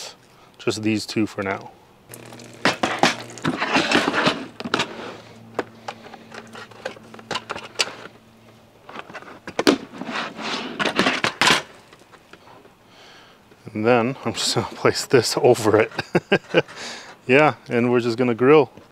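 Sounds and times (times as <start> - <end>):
low steady hum: 1.8 - 10.1.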